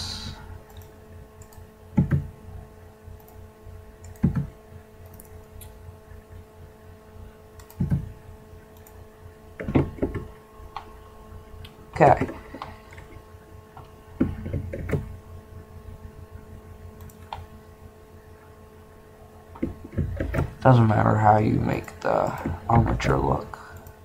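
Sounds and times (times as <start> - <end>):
electrical hum: 0.0 - 24.0
keyboard keystrokes: 0.7 - 2.3, 4.0 - 5.8, 7.6 - 8.1.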